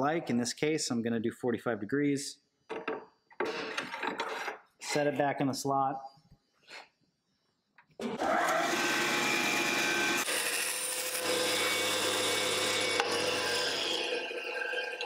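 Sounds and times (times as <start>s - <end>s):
bandsaw motor hum: 8.1s - 14.4s.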